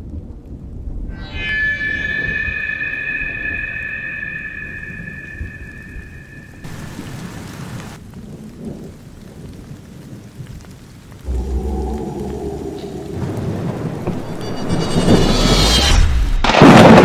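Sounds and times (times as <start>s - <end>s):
steady rain: 0.0s - 1.9s, 3.7s - 15.5s
thunder rumbling: 0.0s - 15.6s
high held tone: 1.1s - 7.1s
deep low note: 11.3s - 14.5s.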